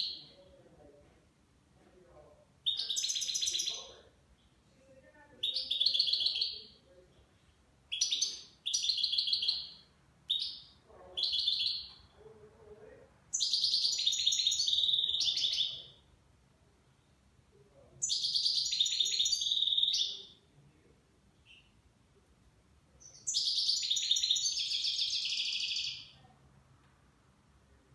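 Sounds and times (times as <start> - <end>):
goldfinch singing: 13.4 - 16.0, 23.0 - 26.1.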